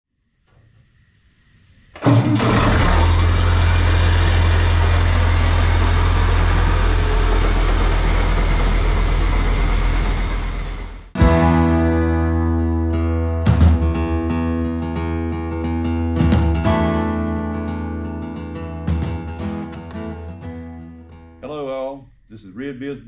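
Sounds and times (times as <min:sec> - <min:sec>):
tractor diesel engine idling: 0:02.0 - 0:11.2.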